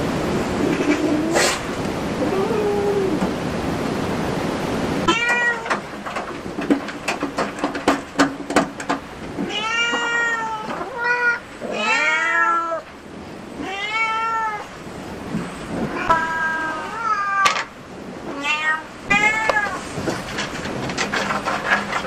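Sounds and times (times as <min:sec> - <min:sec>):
cat meowing: 0:02.2 - 0:03.2, 0:05.0 - 0:05.8, 0:09.4 - 0:12.9, 0:13.6 - 0:14.7, 0:15.9 - 0:19.9.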